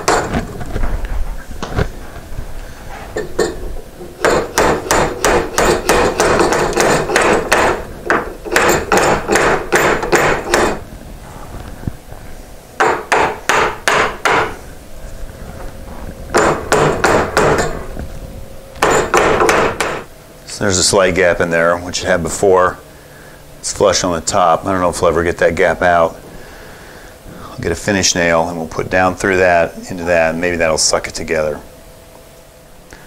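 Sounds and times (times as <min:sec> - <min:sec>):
hammer tapping wooden wedges: 0:04.2 - 0:10.8, 0:12.8 - 0:14.6.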